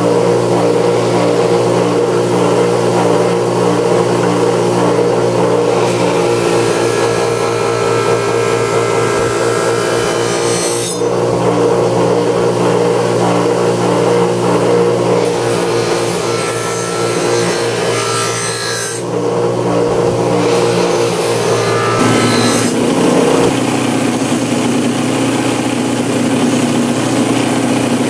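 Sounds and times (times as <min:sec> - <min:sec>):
bench grinder motor hum: 0:00.0 - 0:28.0
knife blade grinding on wheel: 0:20.3 - 0:24.8.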